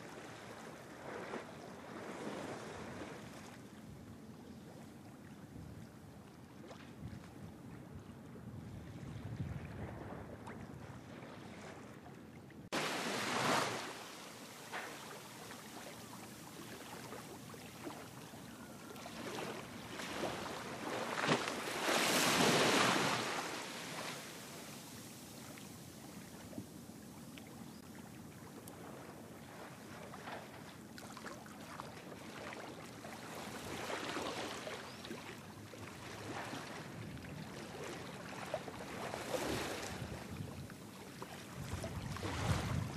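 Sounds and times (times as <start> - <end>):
water rushing surges: 12.7 - 18.0.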